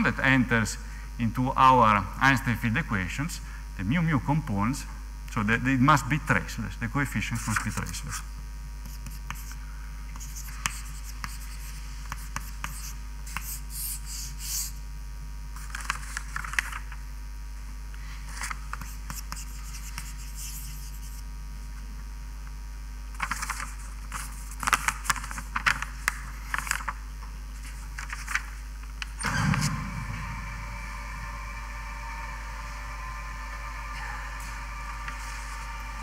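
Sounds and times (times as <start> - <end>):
steady low hum: 0.0 - 36.0
writing scratching on a board: 8.8 - 14.8, 18.8 - 21.2.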